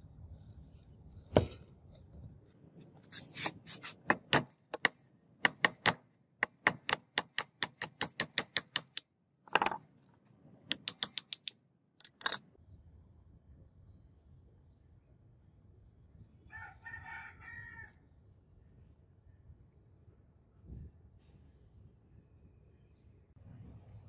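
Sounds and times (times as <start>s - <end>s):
metallic taps and clicks: 10.7s - 12.4s.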